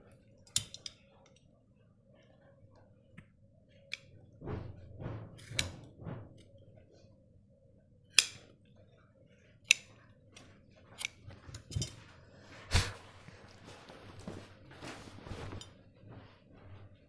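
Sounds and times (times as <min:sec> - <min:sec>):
cloth rustling: 0:12.4 - 0:17.0.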